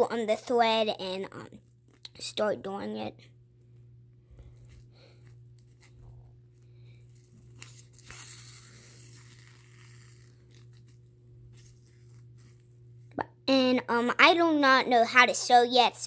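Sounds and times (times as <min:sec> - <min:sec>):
low hum: 0:01.2 - 0:14.2.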